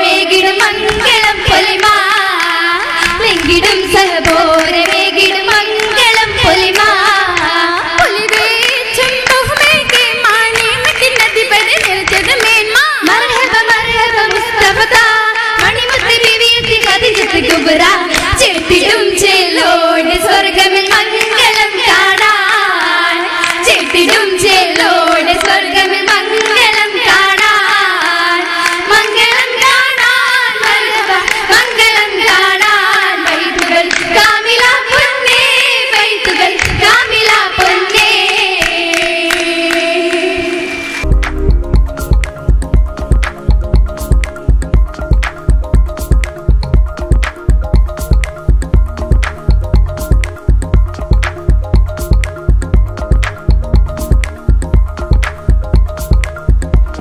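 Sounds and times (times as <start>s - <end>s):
women singing in chorus: 0.0s - 41.1s
sharp hand claps: 1.8s - 5.0s, 5.8s - 12.8s, 23.4s - 25.6s, 33.3s - 34.1s, 36.0s - 37.0s, 37.6s - 40.3s.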